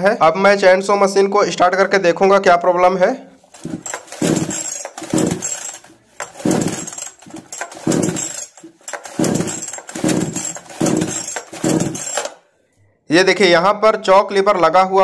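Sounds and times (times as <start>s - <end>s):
chainsaw recoil starter pulls: 3.4s - 12.4s
chainsaw engine cranking briefly: 3.5s - 12.4s.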